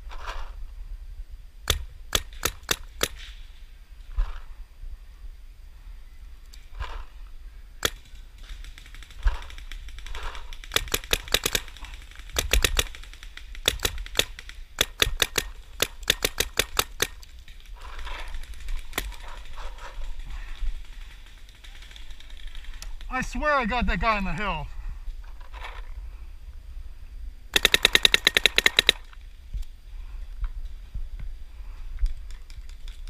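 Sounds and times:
paintball markers firing: 1.6 - 3.4, 7.8 - 23.1, 27.6 - 29.1.

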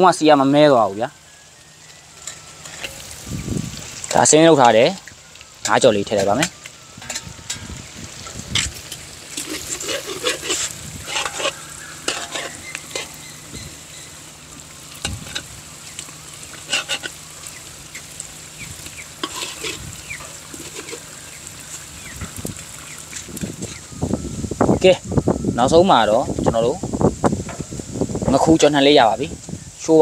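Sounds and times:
fish sizzling in hot oil: 0.0 - 30.0
metal spatula scraping wok: 2.1 - 3.2, 5.7 - 17.3, 19.0 - 21.2, 23.0 - 23.9.

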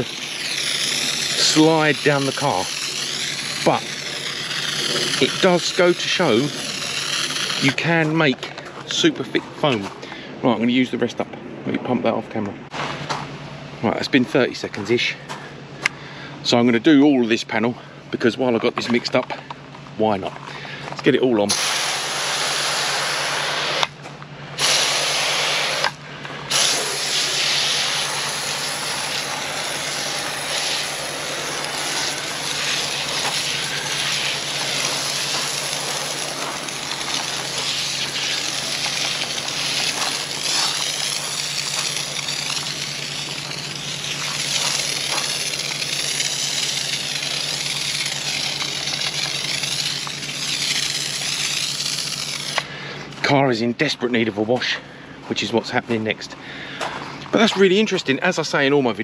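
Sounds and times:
foam sprayer hissing: 0.0 - 8.3, 21.5 - 24.0, 24.6 - 52.9.

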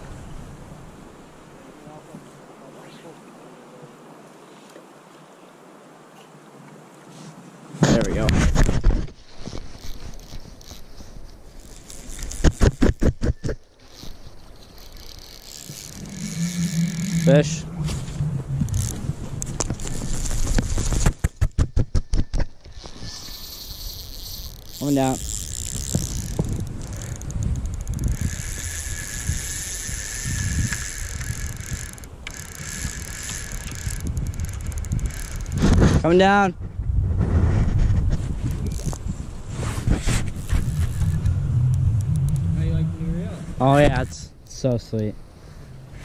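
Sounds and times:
fabric rubbing on microphone: 7.1 - 27.2, 28.0 - 36.0, 36.7 - 43.9
fishing reel ratcheting clicks: 9.7 - 13.0, 13.9 - 17.6, 18.6 - 20.6, 22.7 - 35.7, 38.5 - 39.0, 40.4 - 41.3
river current rushing: 13.6 - 21.2, 22.6 - 36.3, 40.2 - 44.5.

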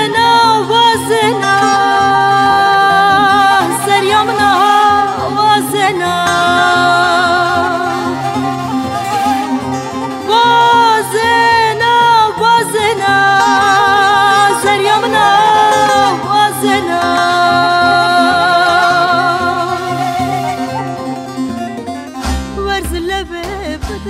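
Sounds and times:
woman singing: 0.0 - 21.3, 22.5 - 24.0
instrumental accompaniment: 0.0 - 24.0.

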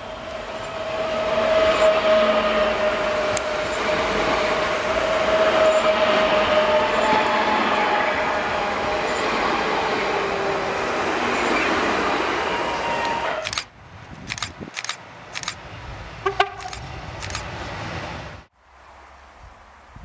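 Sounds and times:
train wheels rumbling on rails: 0.0 - 18.5
short sharp clicks: 13.4 - 15.6, 16.5 - 17.5.

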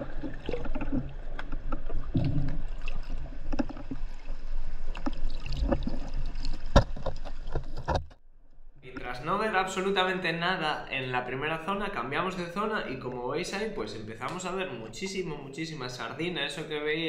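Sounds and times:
underwater bubbling: 0.0 - 7.8
knocks and clicks underwater: 0.0 - 8.2.

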